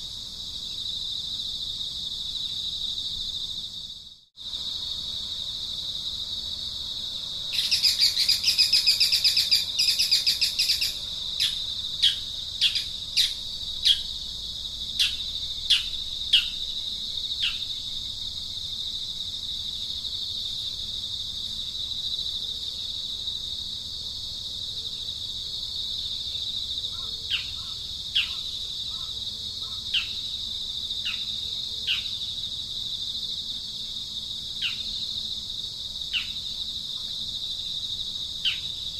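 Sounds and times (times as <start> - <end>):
high-pitched insect drone: 0.0 - 22.5
birds chirping rapidly: 7.6 - 14.1.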